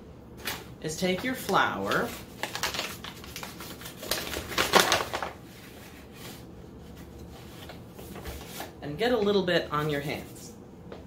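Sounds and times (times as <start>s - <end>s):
paper bag rustling and crinkling: 1.4s - 8.8s.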